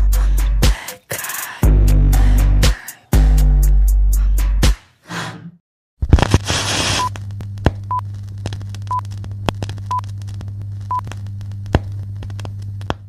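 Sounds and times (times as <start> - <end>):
crackles: 6.0 - 13.0
low electrical hum: 6.1 - 13.0
static hiss: 6.2 - 7.1.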